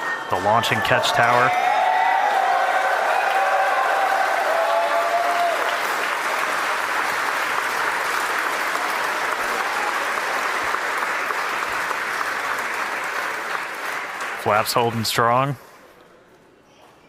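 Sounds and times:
voices cheering: 0.0 - 6.8
crowd applauding: 0.0 - 15.6.

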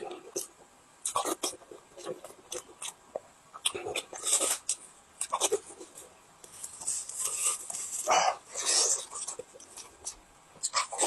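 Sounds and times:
person chewing with mouth full: 0.0 - 6.0.

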